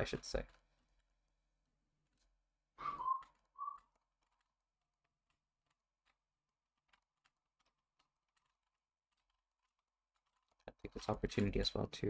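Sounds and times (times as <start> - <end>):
short whistled note: 2.8 - 3.8.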